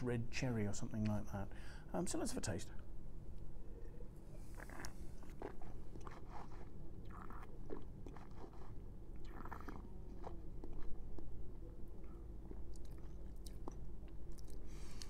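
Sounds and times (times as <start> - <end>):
wet slurping: 4.5 - 9.8.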